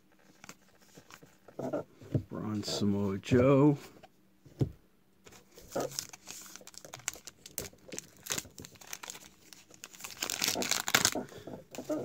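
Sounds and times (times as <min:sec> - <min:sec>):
card pack wrapper tearing and crinkling: 0:05.3 - 0:11.2.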